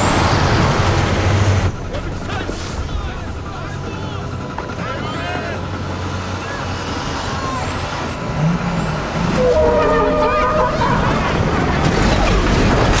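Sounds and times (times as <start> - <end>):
semi-trailer truck running: 0.0 - 13.0
truck horn blare: 9.2 - 12.0.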